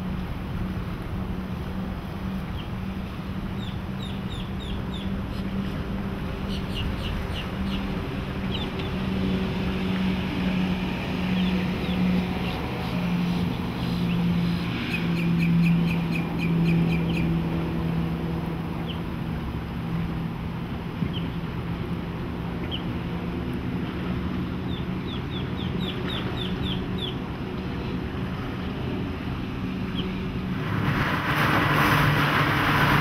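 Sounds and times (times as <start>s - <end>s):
outboard motors droning: 0.0s - 33.0s
birds chirping: 3.6s - 5.8s, 6.4s - 9.0s, 11.2s - 17.4s, 24.6s - 27.2s.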